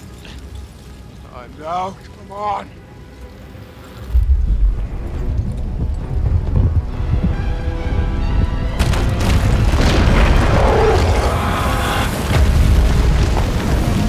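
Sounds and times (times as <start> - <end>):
orchestral film music: 0.0 - 14.0
rock crashing and debris: 8.8 - 14.0.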